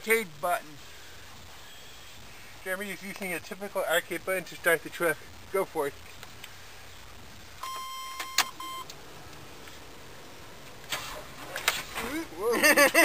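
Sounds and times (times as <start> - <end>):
low steady hum: 0.0 - 13.0
electronic warning beep: 7.6 - 8.9.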